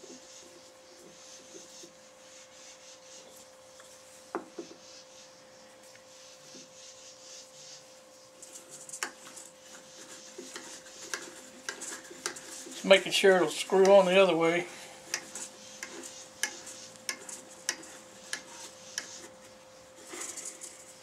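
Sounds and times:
steady shop hum: 0.0s - 21.0s
faint rubbing and scraping: 8.4s - 21.0s.

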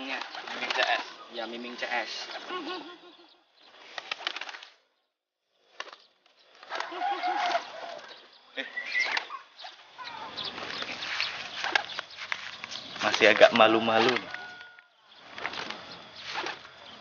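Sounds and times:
pigeons flapping wings: 0.0s - 2.5s, 3.8s - 4.8s, 5.7s - 8.2s, 8.9s - 17.0s
pigeon cooing: 6.7s - 12.0s.

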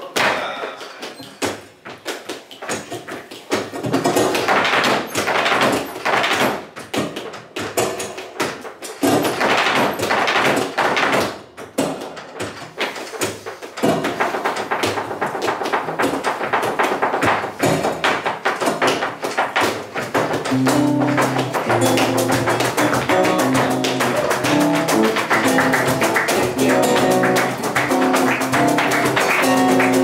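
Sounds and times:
shoes stamping on floor: 1.1s - 30.0s
hand clapping: 12.8s - 30.0s.

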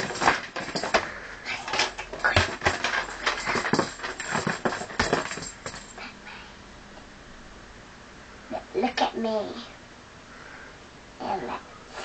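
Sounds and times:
child's feet stamping on wooden floor: 0.0s - 1.1s, 1.8s - 6.0s.

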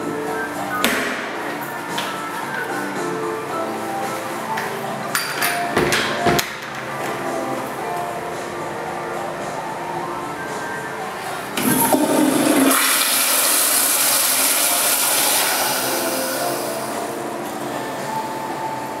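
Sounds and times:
toilet water rushing: 11.5s - 17.1s.

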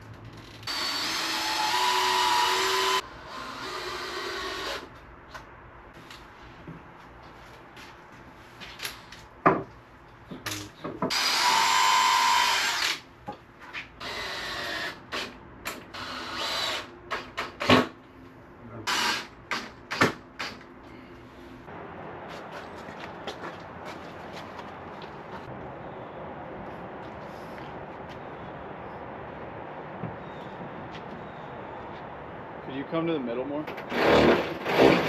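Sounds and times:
power drill running: 0.7s - 4.8s, 11.1s - 13.0s.

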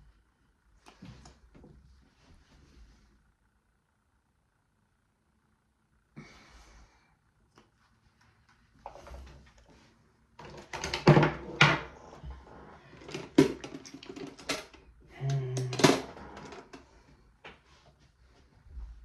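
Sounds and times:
makeup containers clicking and clattering: 13.0s - 14.8s.

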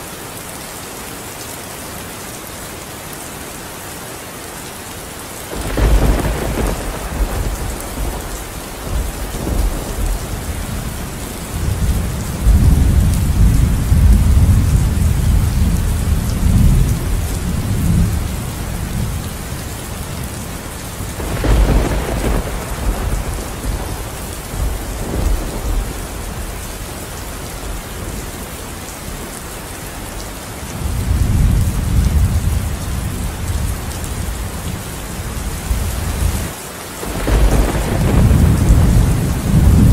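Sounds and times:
steady rain: 0.0s - 39.9s
thunderclaps: 5.5s - 18.3s, 21.1s - 28.2s, 37.0s - 39.9s
low thunder rumbles: 5.5s - 28.5s, 30.7s - 39.9s.

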